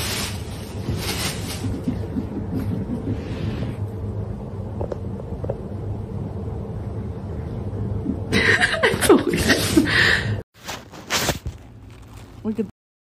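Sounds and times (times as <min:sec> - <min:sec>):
steady low hum: 0:00.0 - 0:10.4
person laughing: 0:08.1 - 0:10.0.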